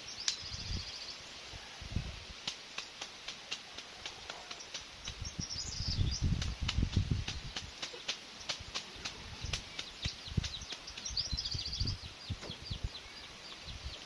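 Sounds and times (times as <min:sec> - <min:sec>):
grass rustling and snapping: 0:00.2 - 0:00.6, 0:02.3 - 0:11.9
sharp clicks: 0:06.3 - 0:11.2.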